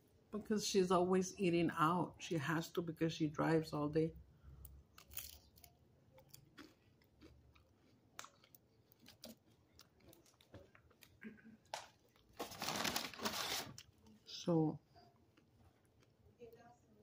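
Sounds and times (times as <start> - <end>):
close-miked chewing: 4.6 - 12.4, 14.9 - 16.6.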